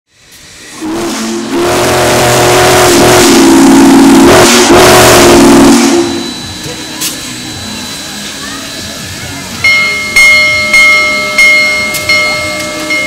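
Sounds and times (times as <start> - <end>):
hiss of steam: 0.1 - 10.2
steam whistle blowing: 0.8 - 8.7.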